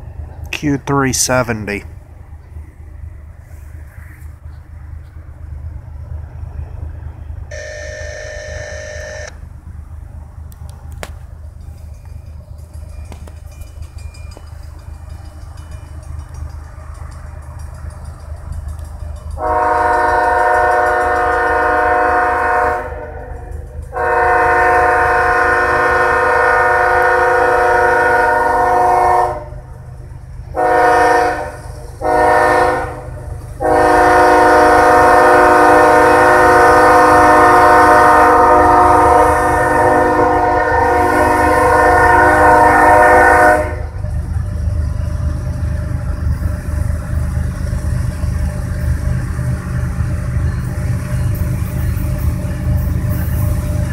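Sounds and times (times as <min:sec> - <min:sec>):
locomotive air horn blasts: 0:07.5 - 0:09.4, 0:19.4 - 0:23.3, 0:24.0 - 0:29.6, 0:30.6 - 0:43.9
diesel engine rumble: 0:42.4 - 0:53.9.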